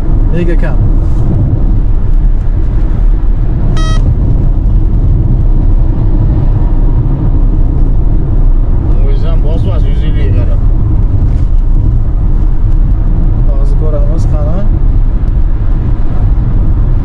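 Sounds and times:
road and tyre noise in car: 0:00.0 - 0:17.0
short electronic beep: 0:03.8 - 0:04.1.

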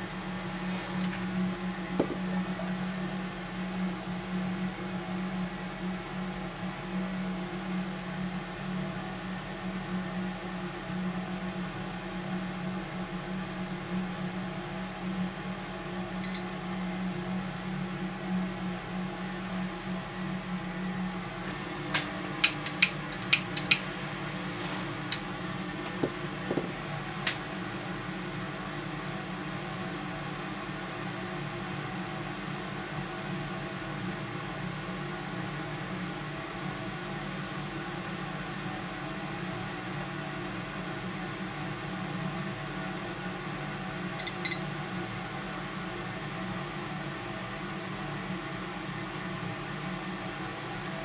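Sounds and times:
fume extractor fan running: 0:00.0 - 0:51.0
sharp clicks of matches in tray: 0:22.0 - 0:23.8.

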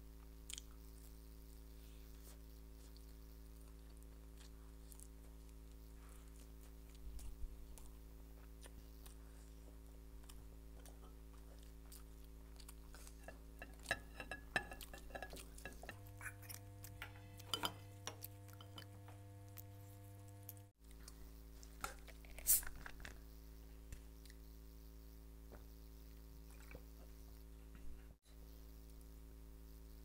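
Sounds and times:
chewing and lip smacks: 0:00.4 - 0:01.6, 0:02.8 - 0:14.0
low hum: 0:00.9 - 0:21.7.

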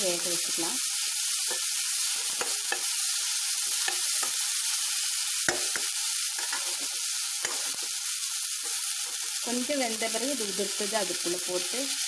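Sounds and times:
beans sizzling in a pan: 0:00.0 - 0:12.0
spoon scraping and clinking on pan: 0:01.4 - 0:03.0, 0:03.7 - 0:04.4, 0:05.5 - 0:07.9.

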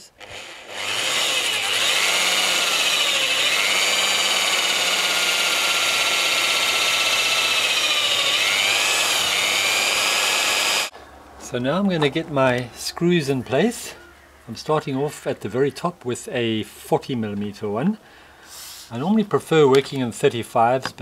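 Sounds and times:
electric drill running: 0:00.2 - 0:10.9.

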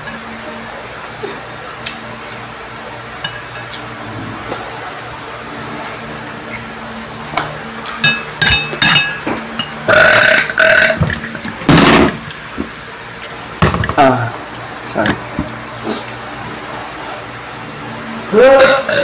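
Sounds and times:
metal spoon clinking on bowl: 0:08.0 - 0:09.8
loud burping: 0:09.9 - 0:11.1, 0:18.6 - 0:19.0.

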